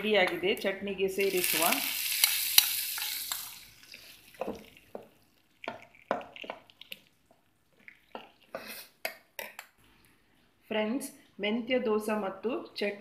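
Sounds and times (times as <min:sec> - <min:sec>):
hot oil hissing: 0:01.2 - 0:04.5
spoon stirring in steel bowl: 0:02.1 - 0:09.9.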